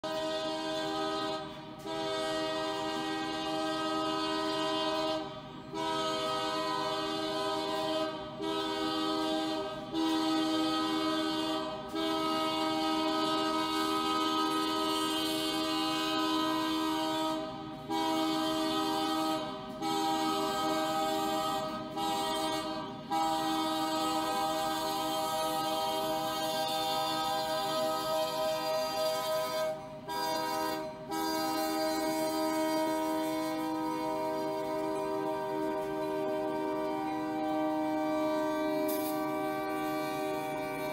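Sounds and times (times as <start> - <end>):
locomotive air horn blaring: 0.0 - 40.9.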